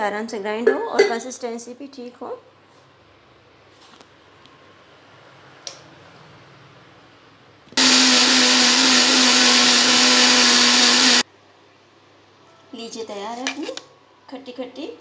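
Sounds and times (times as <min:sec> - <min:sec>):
mixer grinder motor humming: 0:07.8 - 0:11.2.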